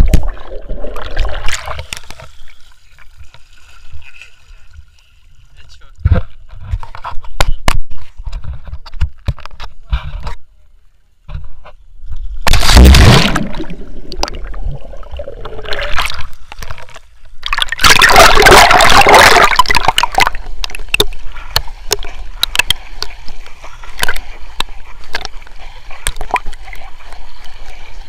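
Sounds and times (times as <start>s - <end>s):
sea water splashing: 0.0s - 4.9s, 12.5s - 28.0s
small clicks and drips: 19.8s - 27.6s.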